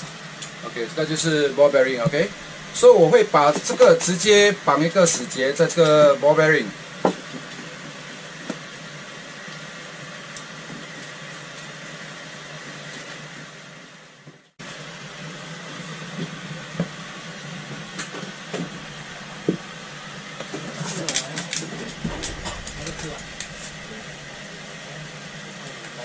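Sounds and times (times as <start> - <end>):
boat machinery hum: 0.6 - 4.7, 15.7 - 26.0.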